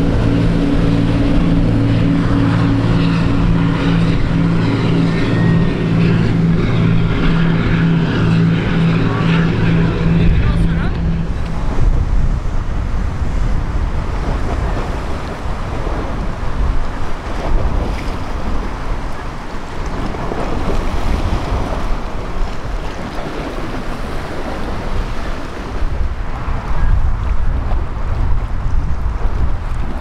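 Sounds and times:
wind rushing: 0:00.0 - 0:18.8
water washing at shoreline: 0:00.0 - 0:30.0
wind rumbling on microphone: 0:00.0 - 0:30.0.

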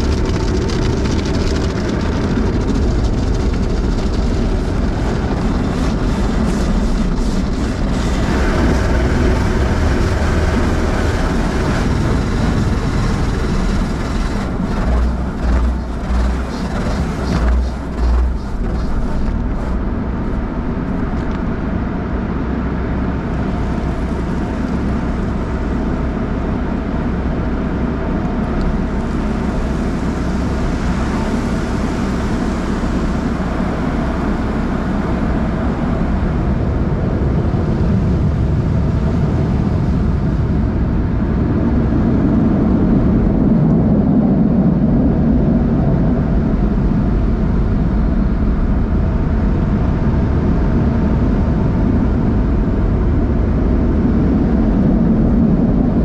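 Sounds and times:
water spray rushing over car: 0:00.0 - 0:21.0
low machinery rumble: 0:00.0 - 0:56.0
wash brushes thumping windshield: 0:11.4 - 0:21.3.

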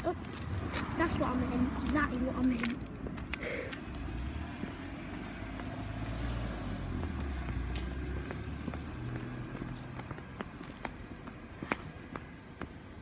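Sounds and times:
car driving away: 0:03.1 - 0:11.6.

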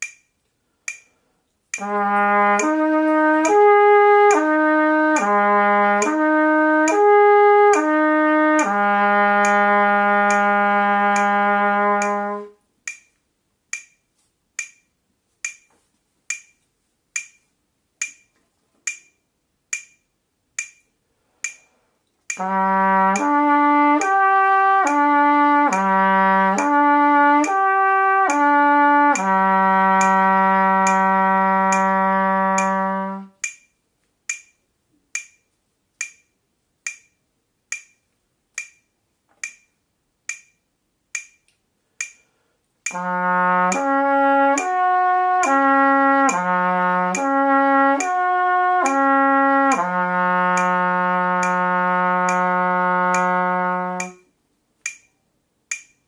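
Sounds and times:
metronome clicking: 0:00.0 - 0:56.0
trumpet playing slurred notes: 0:01.8 - 0:12.6, 0:22.4 - 0:33.4, 0:42.9 - 0:54.2.

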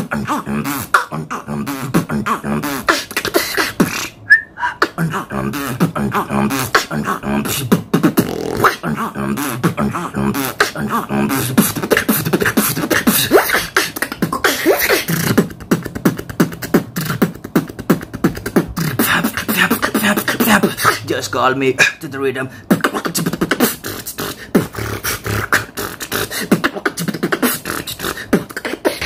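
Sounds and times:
person humming: 0:00.0 - 0:21.2
beatboxing mouth percussion: 0:00.0 - 0:29.0.

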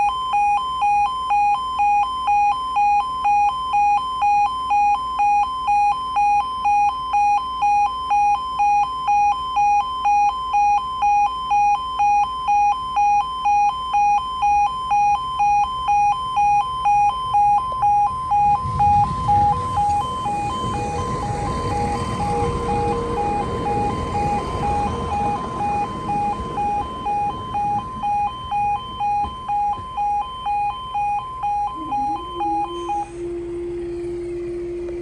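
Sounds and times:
two-tone level crossing alarm: 0:00.0 - 0:35.0
diesel train rumbling past: 0:18.1 - 0:35.0.

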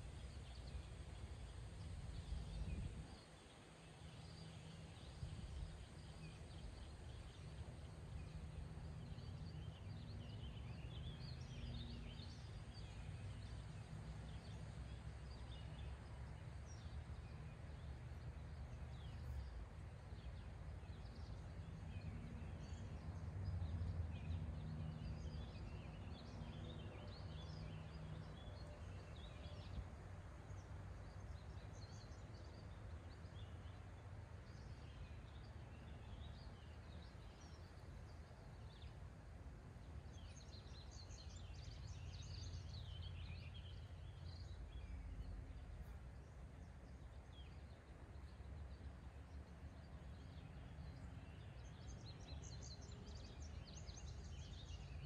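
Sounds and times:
small birds chirping: 0:30.5 - 0:55.0.

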